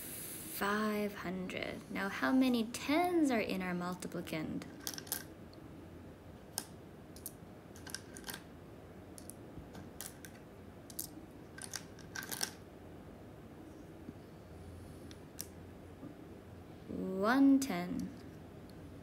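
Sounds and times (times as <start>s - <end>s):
wooden tiles clicking: 4.8s - 5.3s, 10.0s - 12.6s.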